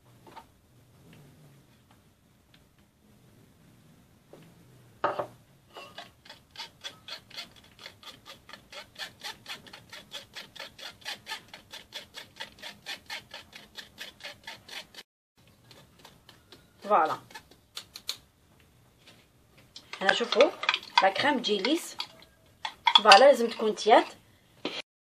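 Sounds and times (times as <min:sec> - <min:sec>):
metal spoon scraping through sieve: 0:05.7 - 0:15.0, 0:20.0 - 0:24.2.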